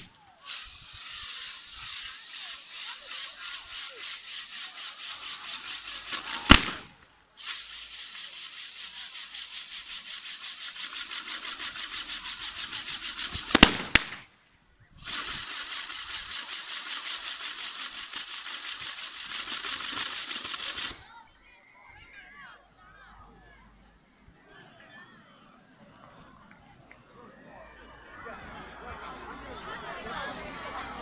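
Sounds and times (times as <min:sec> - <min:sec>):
firework crackling pops: 0:00.0 - 0:14.4, 0:15.0 - 0:21.0
firework loud bang: 0:06.4 - 0:06.9, 0:13.4 - 0:14.2.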